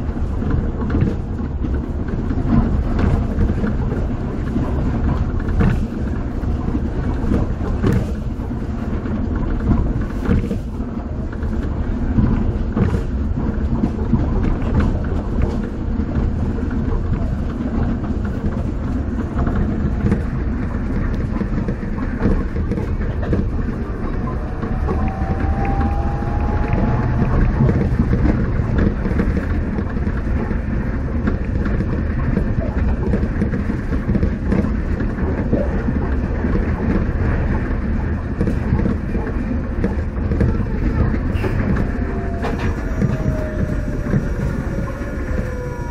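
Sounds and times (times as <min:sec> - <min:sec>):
train low rumble and tyre noise: 0:00.0 - 0:45.9
faint rising whine: 0:22.9 - 0:30.6, 0:40.1 - 0:45.9.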